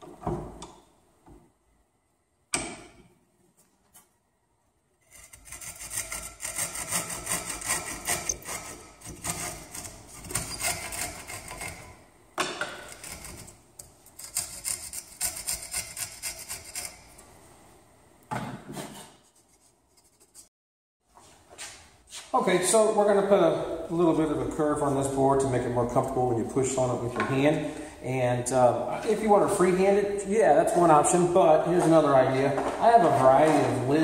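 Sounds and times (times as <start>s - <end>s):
handsaw cutting plywood: 5.1s - 11.9s.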